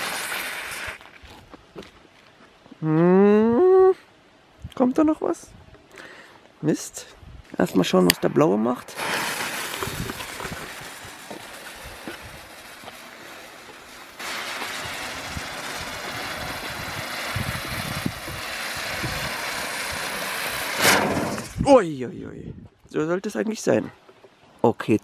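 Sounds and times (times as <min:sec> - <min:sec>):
fuse fizzing: 0:00.0 - 0:01.0, 0:08.8 - 0:21.5
firework hissing and crackling: 0:00.0 - 0:01.1, 0:07.8 - 0:21.7
sharp crack: 0:07.6 - 0:21.7.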